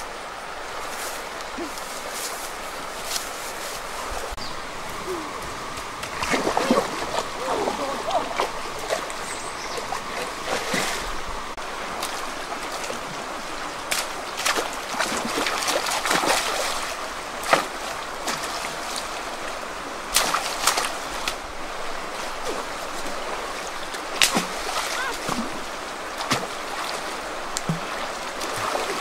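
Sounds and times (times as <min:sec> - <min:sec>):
river current rushing: 0:00.0 - 0:29.0
person wading through water: 0:00.8 - 0:29.0
sharp splashes: 0:06.0 - 0:11.3, 0:13.9 - 0:19.0, 0:20.1 - 0:21.4, 0:24.1 - 0:29.0.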